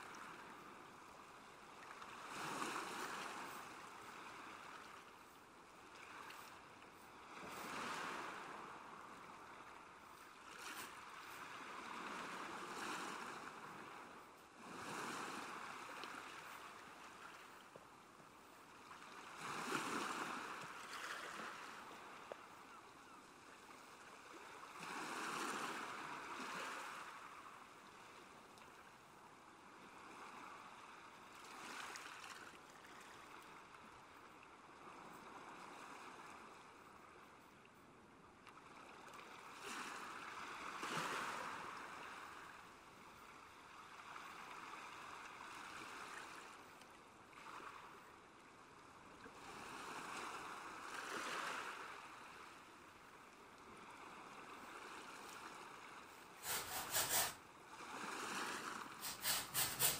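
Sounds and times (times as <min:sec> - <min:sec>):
soft sea waves washing: 0:00.0 - 0:59.9.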